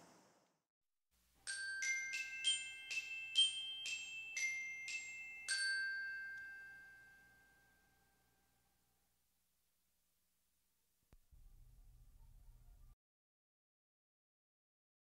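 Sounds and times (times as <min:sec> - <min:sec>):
glockenspiel tune: 0:01.4 - 0:08.6.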